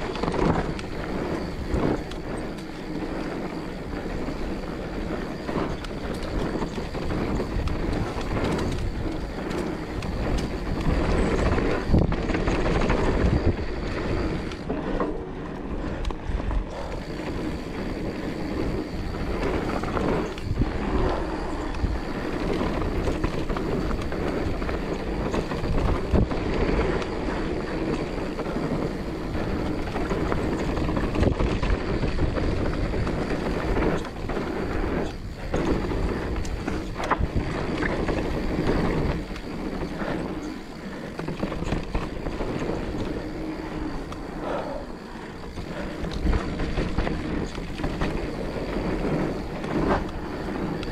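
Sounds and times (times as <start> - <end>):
bike rattling over bumps: 0.0 - 50.9
bike tyres rumbling over dirt: 0.0 - 50.9.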